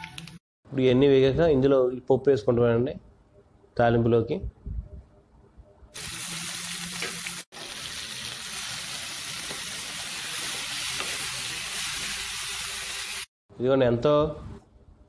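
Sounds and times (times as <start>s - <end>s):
food sizzling in hot oil: 6.0s - 13.3s.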